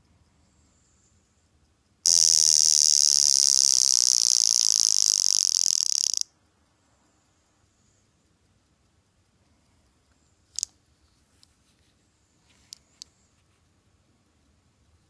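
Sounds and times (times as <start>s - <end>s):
wristwatch alarm buzzing: 2.1s - 6.3s, 10.5s - 10.7s.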